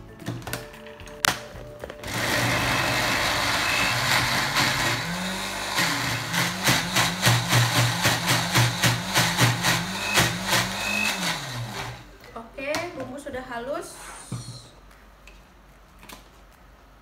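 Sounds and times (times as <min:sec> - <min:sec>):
electric blender grinding: 0:02.0 - 0:12.0.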